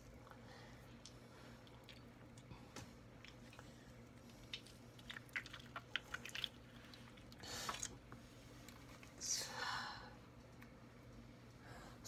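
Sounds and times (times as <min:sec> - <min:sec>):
wet squelching of squeezed gel: 0:04.2 - 0:08.0.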